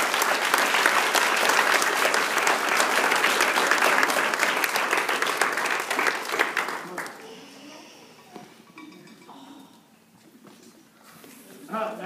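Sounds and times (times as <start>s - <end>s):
group applauding: 0.0s - 7.4s.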